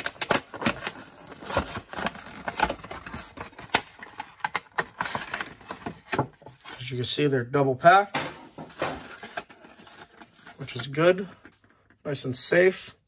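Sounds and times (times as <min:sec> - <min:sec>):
packaging clicking and crackling: 0:00.0 - 0:06.3.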